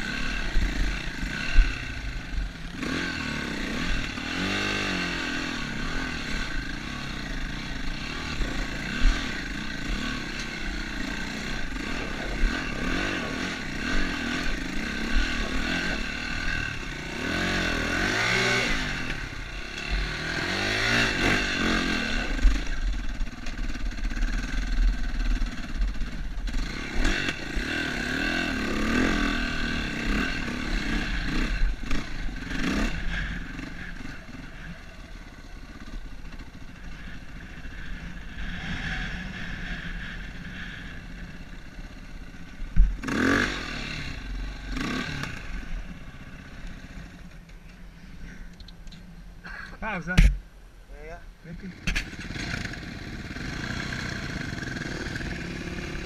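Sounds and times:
motorcycle engine revving: 0:00.0 - 0:50.5, 0:51.5 - 0:56.0
sharp knock: 0:50.2 - 0:50.4.

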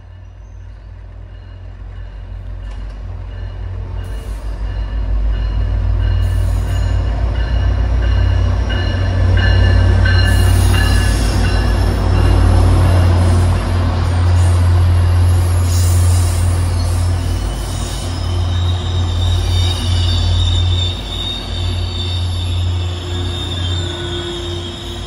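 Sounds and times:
diesel train rumbling past: 0:00.0 - 0:25.0
wheel squeal: 0:15.1 - 0:25.0.

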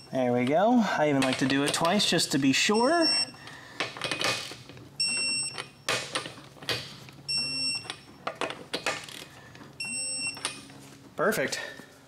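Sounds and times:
torque wrench beeps: 0:02.6 - 0:03.5, 0:05.0 - 0:05.9, 0:07.3 - 0:08.2, 0:09.8 - 0:10.6.

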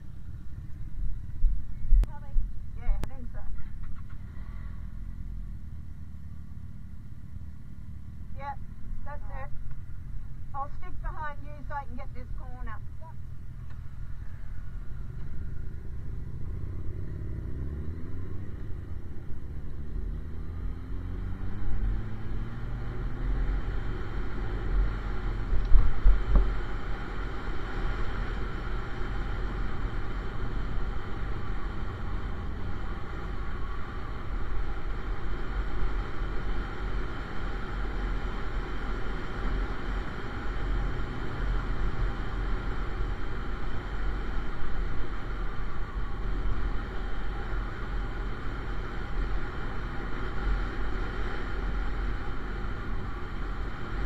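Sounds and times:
motorcycle engine accelerating: 0:13.3 - 0:54.0
wind rumble on microphone: 0:20.4 - 0:54.0.

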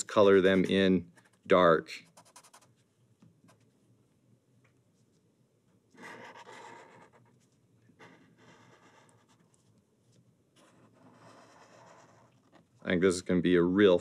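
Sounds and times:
marker scribbling on paper: 0:02.0 - 0:02.8, 0:06.0 - 0:12.8.

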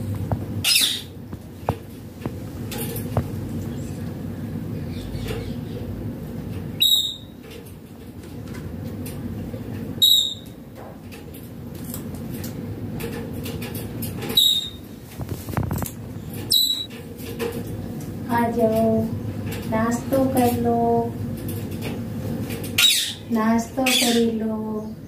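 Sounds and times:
low background hum: 0:00.0 - 0:25.0
parakeet calling: 0:00.6 - 0:01.2, 0:06.7 - 0:07.4, 0:10.0 - 0:10.6, 0:14.3 - 0:14.9, 0:16.4 - 0:16.9, 0:22.8 - 0:24.4.

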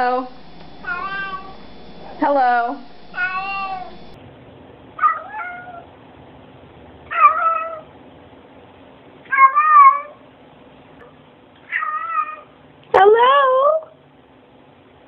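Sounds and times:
cat meowing: 0:00.8 - 0:01.6, 0:03.2 - 0:04.0, 0:05.0 - 0:05.9, 0:07.1 - 0:07.9, 0:09.3 - 0:10.2, 0:11.6 - 0:12.5.

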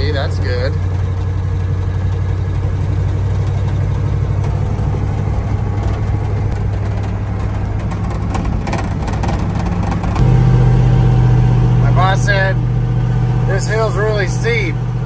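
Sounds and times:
tyres rolling on gravel: 0:00.0 - 0:10.2
truck engine running: 0:00.0 - 0:15.0
light knocks or rattles: 0:00.7 - 0:10.2.

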